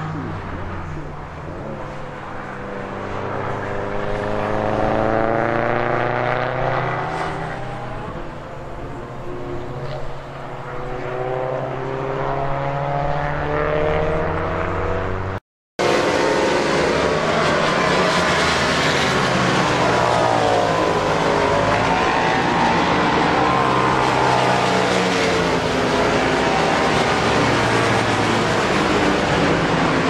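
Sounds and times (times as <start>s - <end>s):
racing car engines at high revs: 0.0s - 30.0s.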